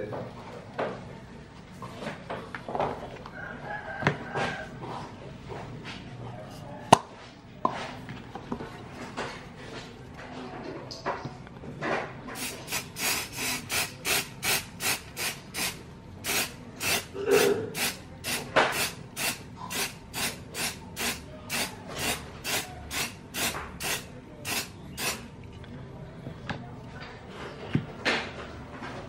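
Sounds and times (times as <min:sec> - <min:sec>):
aerosol spray hissing: 0:12.4 - 0:17.1, 0:17.8 - 0:25.2.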